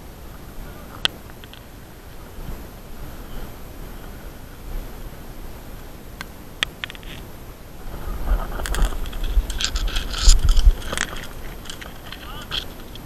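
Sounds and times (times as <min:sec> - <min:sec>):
scraping crackling rustle: 0:00.0 - 0:13.0
sharp clicks: 0:00.3 - 0:01.7, 0:06.2 - 0:07.3, 0:08.3 - 0:13.0.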